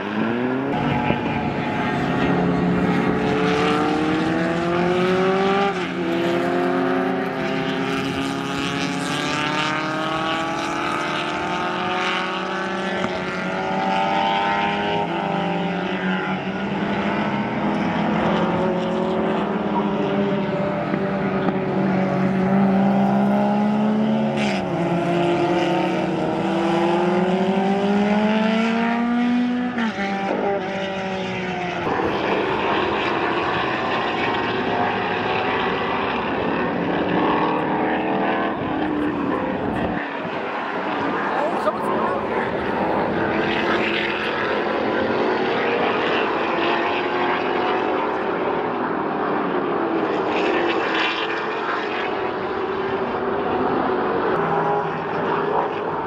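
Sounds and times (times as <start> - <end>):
racing car engines: 0.0 - 56.0.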